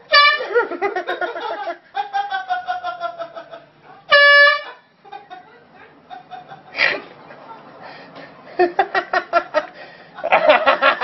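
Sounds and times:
air horn from phone speaker: 0:00.0 - 0:00.5, 0:04.1 - 0:04.8.

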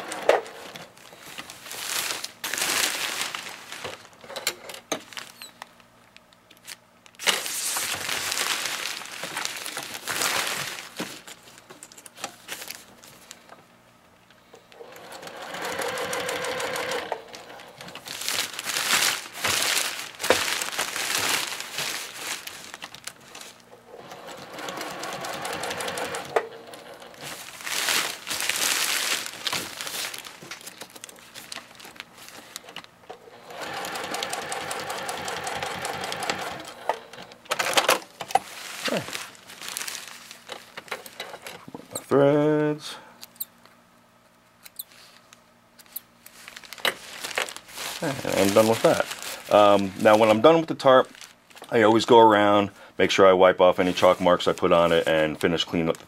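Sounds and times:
tarp fabric crinkling: 0:01.1 - 0:04.2, 0:07.2 - 0:11.6, 0:18.0 - 0:23.7, 0:27.2 - 0:32.6, 0:38.4 - 0:41.2, 0:46.3 - 0:52.1
sewing machine stitching: 0:14.8 - 0:18.0, 0:23.9 - 0:27.3, 0:33.2 - 0:37.8.

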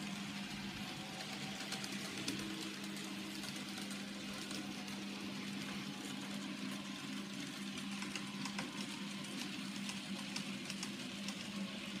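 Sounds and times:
wheels clicking on track: 0:00.0 - 0:12.0.

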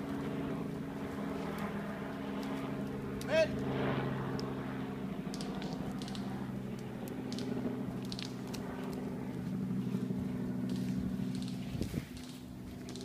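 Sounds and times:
steady low hum: 0:00.0 - 0:13.0
footsteps through undergrowth: 0:08.0 - 0:13.0.

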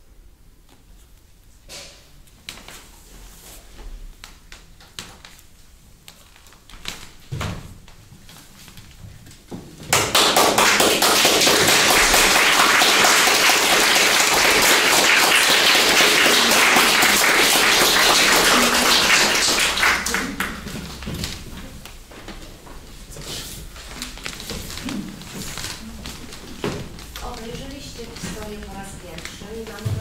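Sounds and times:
audience applauding: 0:09.9 - 0:21.1.

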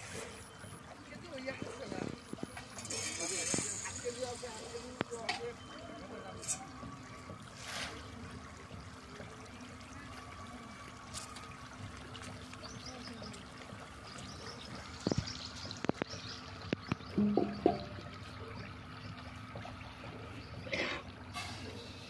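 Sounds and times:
sharp knocks: 0:17.2 - 0:18.0.

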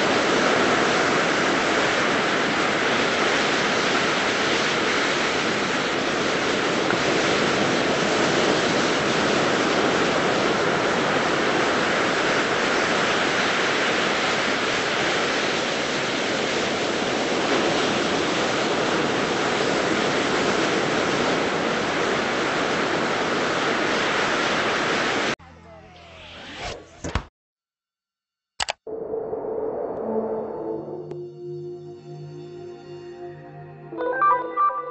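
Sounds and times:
ocean waves breaking on beach: 0:00.0 - 0:25.4.

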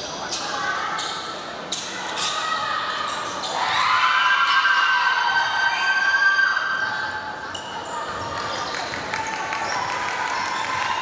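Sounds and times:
spectators cheering: 0:08.5 - 0:11.0.

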